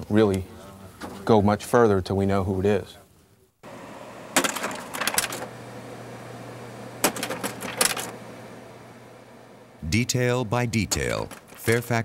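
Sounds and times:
projector fan hum: 2.4 - 12.0.

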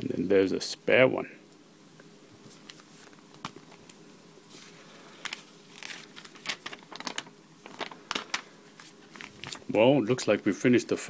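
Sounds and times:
paper booklet rustling: 2.4 - 10.4.

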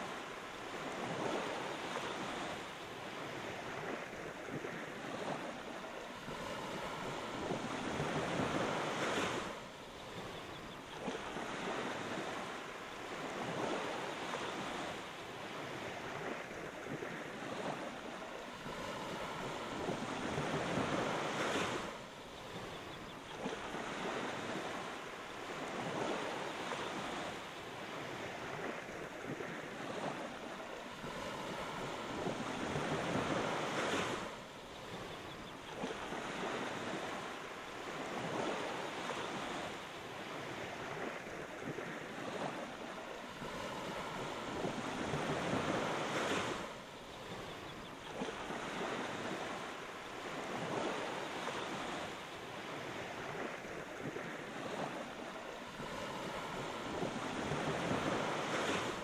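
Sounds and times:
waves breaking on sandy beach: 0.0 - 59.0.

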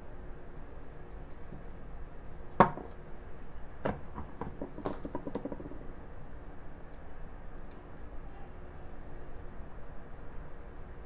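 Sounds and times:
sharp knock on wooden bench: 2.6 - 2.9.

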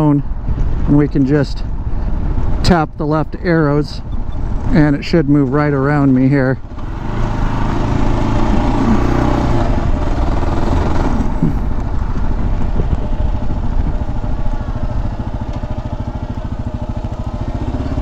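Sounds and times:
motorcycle engine at road speed: 3.7 - 18.0.

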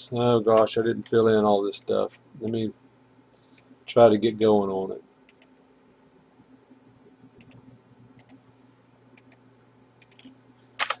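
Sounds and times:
low steady hum: 0.0 - 11.0
computer mouse and keyboard clicks: 7.4 - 7.6, 8.2 - 8.4, 10.0 - 11.0.

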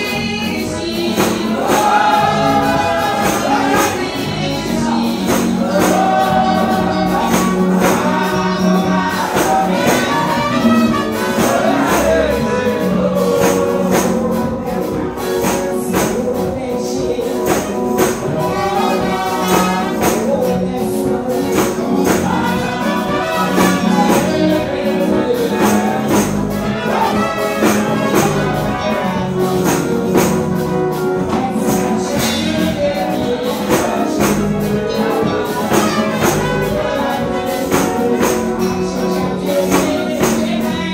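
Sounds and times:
gospel music: 0.0 - 40.9
person singing: 0.0 - 40.9.

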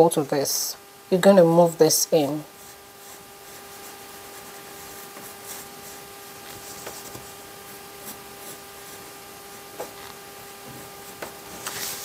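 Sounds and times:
steady low hum: 0.0 - 12.0
pencil scratching on paper: 2.4 - 9.8.

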